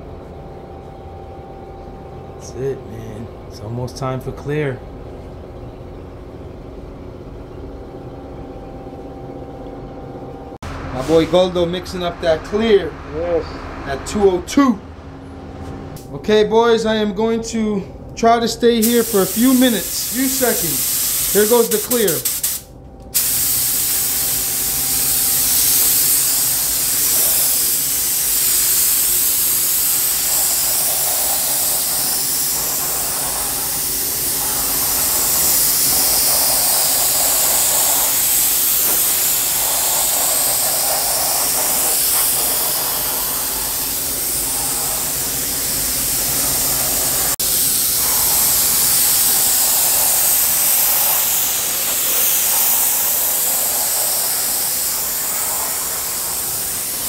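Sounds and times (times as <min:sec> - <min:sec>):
steady low hum: 0:00.0 - 0:57.0
paint spray gun hissing: 0:18.8 - 0:57.0.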